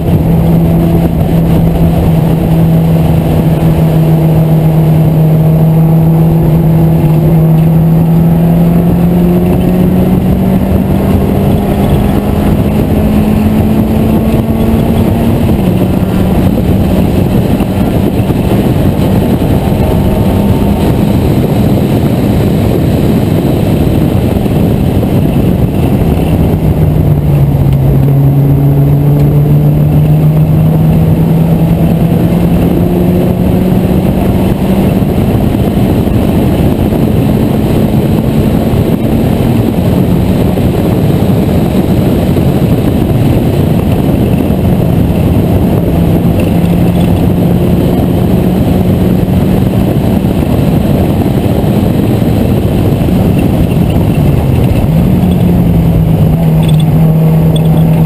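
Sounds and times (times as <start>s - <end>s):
race car engine running hard: 0.0s - 58.0s
wind noise: 0.0s - 58.0s.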